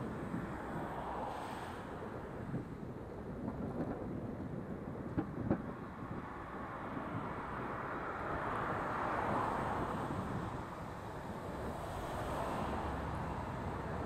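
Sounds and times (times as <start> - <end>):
tyres hissing on wet road: 0.5 - 2.2, 11.5 - 14.0.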